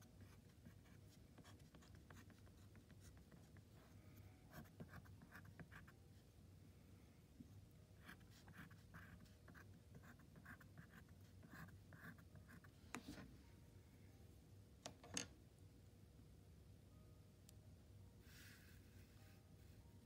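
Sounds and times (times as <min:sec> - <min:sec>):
stylus scratching on paper: 0:00.0 - 0:06.0, 0:08.0 - 0:13.2.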